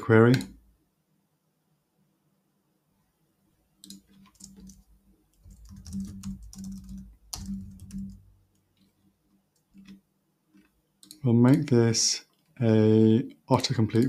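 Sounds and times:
keyboard typing: 0:03.8 - 0:10.0, 0:10.6 - 0:11.7.

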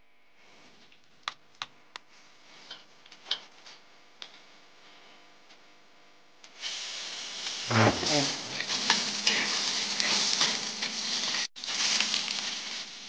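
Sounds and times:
hot oil crackling and popping: 0:06.4 - 0:13.0.

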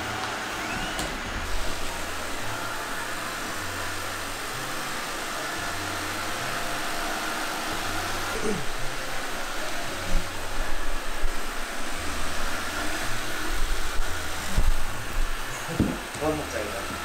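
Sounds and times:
robot vacuum cleaner whirring: 0:00.0 - 0:17.0
knocks: 0:15.8 - 0:16.1.

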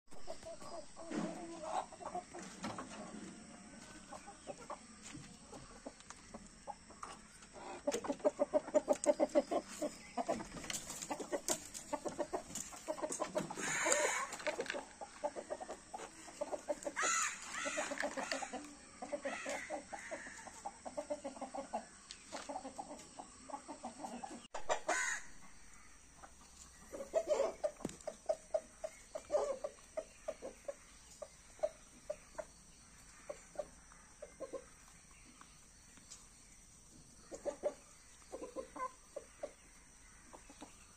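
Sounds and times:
chickens clucking: 0:00.1 - 0:40.9
high chicken calls: 0:13.4 - 0:14.6, 0:16.8 - 0:20.6, 0:24.6 - 0:25.4.

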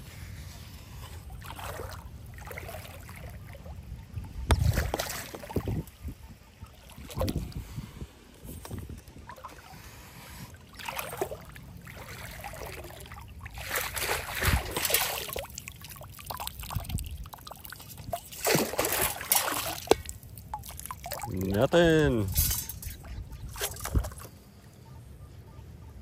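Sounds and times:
water sloshing and splashing: 0:00.0 - 0:24.6
water trickling through scoop: 0:10.4 - 0:24.3.

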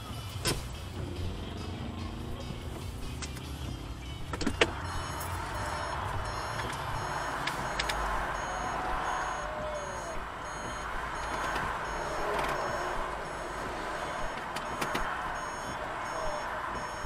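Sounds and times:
traffic rushing past: 0:00.0 - 0:17.0
sharp clicks: 0:04.3 - 0:08.2, 0:10.6 - 0:16.2
faint high-pitched electronic beep: 0:08.4 - 0:13.5, 0:14.1 - 0:17.0.

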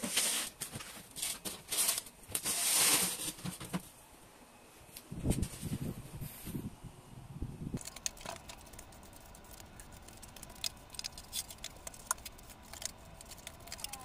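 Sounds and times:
broom sweeping floor: 0:00.0 - 0:03.8.

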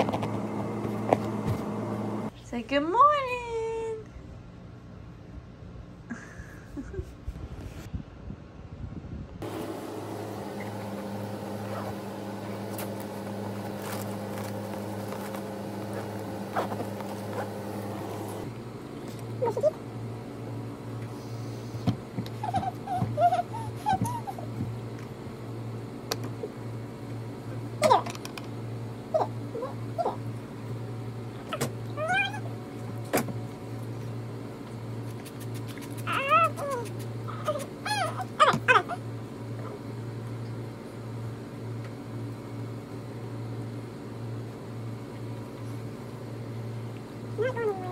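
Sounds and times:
low machine hum: 0:00.0 - 0:47.9
toddler whiny crying: 0:22.4 - 0:24.5, 0:37.4 - 0:39.0.

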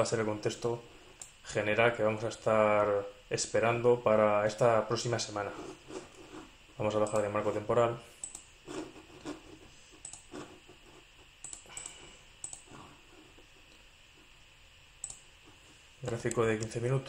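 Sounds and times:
mouse and keyboard clicks: 0:10.0 - 0:10.3, 0:11.4 - 0:12.7.

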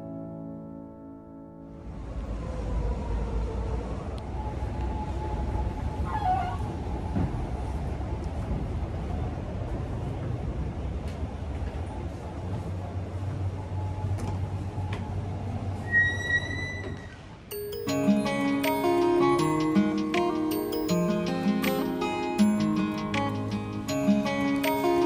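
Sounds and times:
traffic rumble: 0:01.7 - 0:17.5
short falling squeal: 0:15.8 - 0:17.2.

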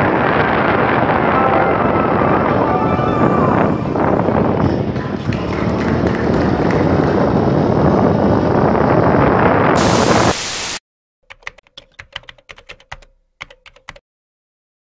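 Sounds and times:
rushing wind: 0:00.0 - 0:10.8
road noise: 0:04.2 - 0:10.4
static hiss: 0:09.8 - 0:10.8
keyboard typing clicks: 0:11.3 - 0:14.0.

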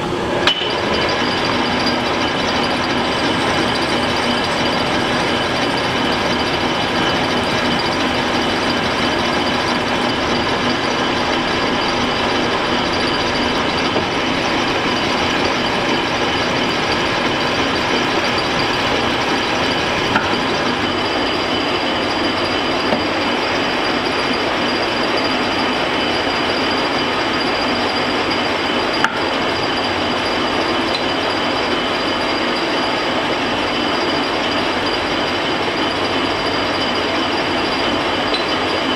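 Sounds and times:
metal lathe running: 0:00.0 - 0:38.9.

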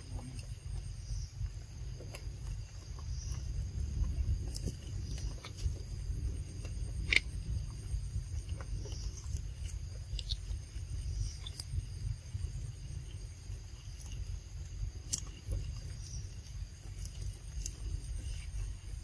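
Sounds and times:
insects chirring: 0:00.0 - 0:19.0
low rumble: 0:00.0 - 0:19.0
small clicks and ticks: 0:08.4 - 0:11.8, 0:13.0 - 0:17.9.

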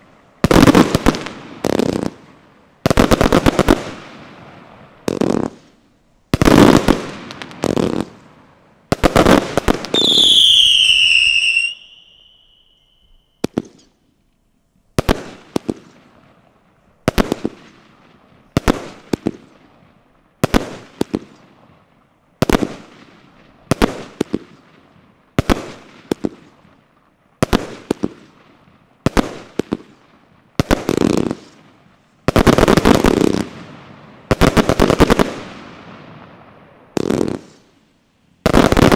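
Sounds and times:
firework falling whistle: 0:09.9 - 0:13.5.

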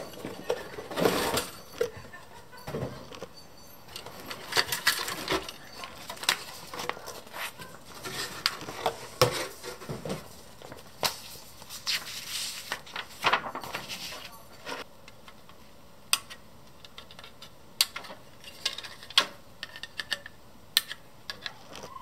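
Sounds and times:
paper rustling: 0:04.5 - 0:14.8.

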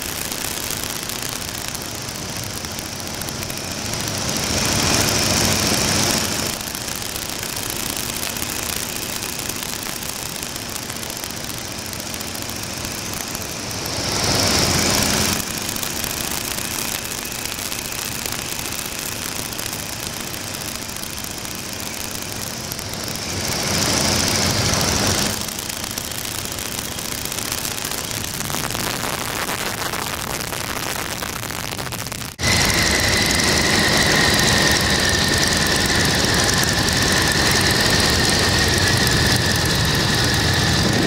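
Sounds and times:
radial engine running: 0:00.0 - 0:41.0
wind rushing past cockpit: 0:28.4 - 0:41.0.

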